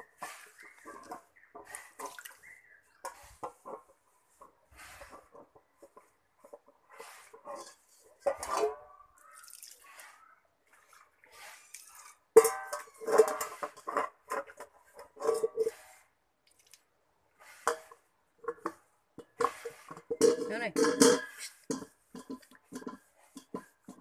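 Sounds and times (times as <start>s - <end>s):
water sloshing and dripping: 0.0s - 24.0s
metal pot knocking and clanking: 7.4s - 9.0s, 12.3s - 15.8s, 17.6s - 24.0s.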